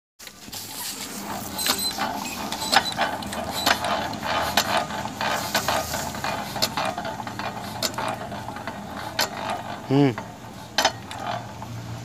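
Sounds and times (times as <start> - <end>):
engine hand-cranked clicks and clacks: 0.2 - 12.0.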